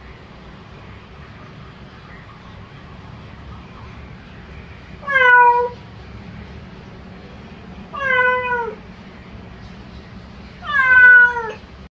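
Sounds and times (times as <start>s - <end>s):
cat meowing: 5.0s - 5.8s, 7.9s - 8.8s, 10.6s - 11.6s.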